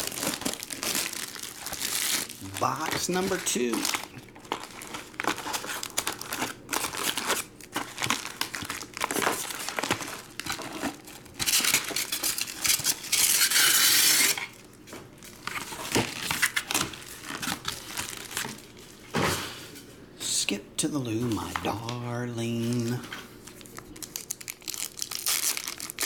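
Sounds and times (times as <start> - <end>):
loud plastic tear: 0.0 - 14.5, 15.4 - 18.6, 23.9 - 26.0
plastic wrapping crinkling: 0.0 - 14.6, 15.2 - 19.1, 21.5 - 26.0.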